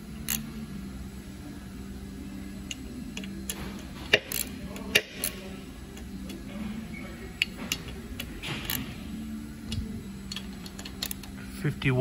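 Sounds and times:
steady low hum: 0.0s - 12.0s
torque wrench clicks: 0.2s - 0.5s, 2.6s - 5.4s, 9.7s - 11.4s.

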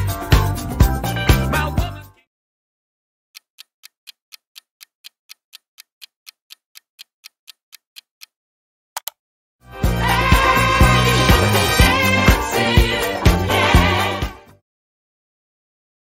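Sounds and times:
music: 0.0s - 2.3s, 9.6s - 14.6s
clock ticking: 3.3s - 8.4s
sharp clicks: 9.0s - 9.2s.

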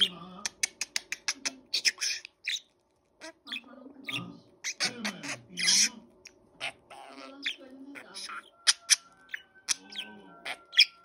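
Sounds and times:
budgerigar squawking: 3.2s - 6.0s, 6.6s - 11.0s.

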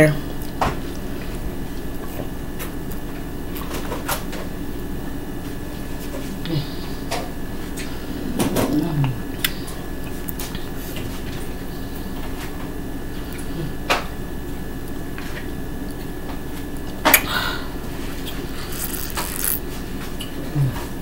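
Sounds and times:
steady background hum: 0.0s - 21.0s
person sipping and swallowing: 18.6s - 19.6s.

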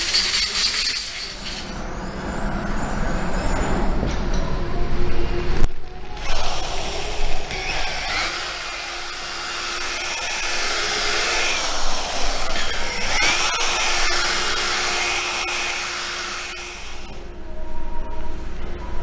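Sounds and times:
rotary polisher motor whine: 6.2s - 17.3s.

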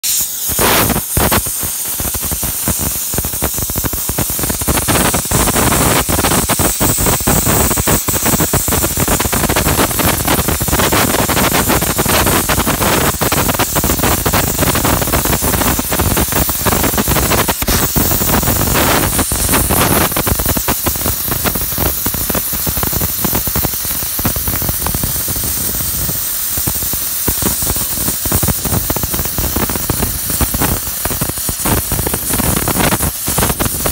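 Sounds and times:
cutting torch hissing: 0.0s - 33.9s
molten metal crackling: 0.0s - 33.9s.

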